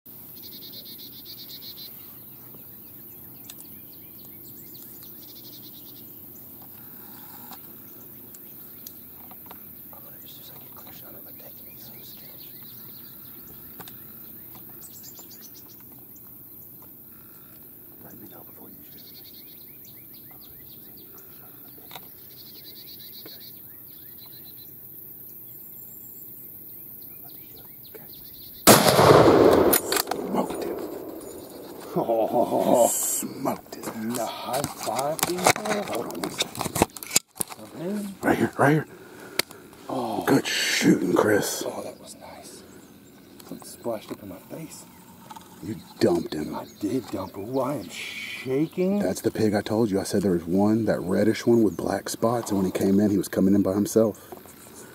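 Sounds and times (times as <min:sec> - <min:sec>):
rapid pulsing insect trill: 0:00.1 - 0:36.7, 0:37.6 - 0:54.9
steady low hum: 0:00.1 - 0:36.8
bird chirps: 0:00.3 - 0:54.9
loud rifle shot echoing: 0:28.6 - 0:32.4.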